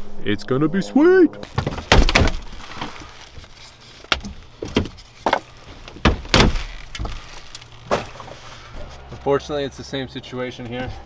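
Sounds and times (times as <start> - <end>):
plastic panels knocking and clattering: 4.1 - 7.2.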